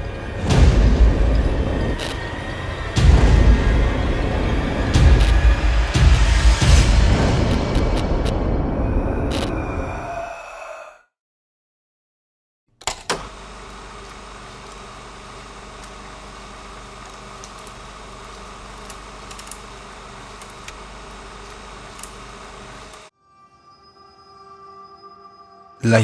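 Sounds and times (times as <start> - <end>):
low hum: 0.0 - 10.1.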